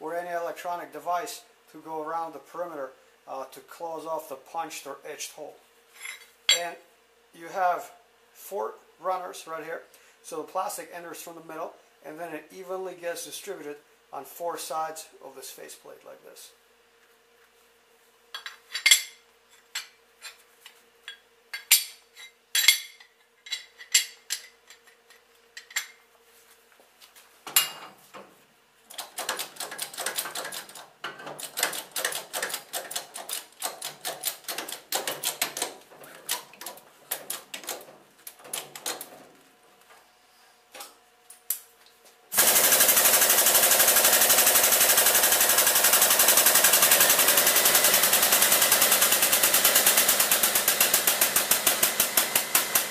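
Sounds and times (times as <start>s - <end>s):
steel mold parts clinking: 21.1s - 24.9s
loud steady mechanical noise: 42.3s - 52.9s
fast clatter of metal clicks: 42.4s - 52.9s.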